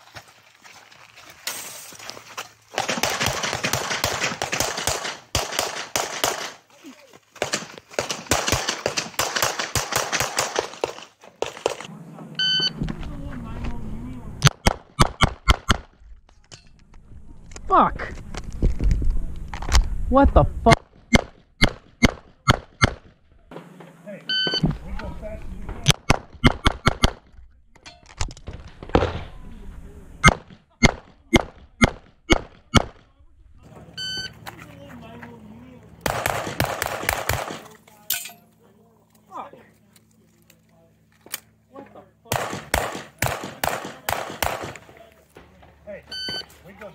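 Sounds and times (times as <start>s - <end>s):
rapid pistol fire: 2.8s - 6.6s, 7.4s - 11.8s, 36.0s - 37.6s, 42.3s - 44.9s.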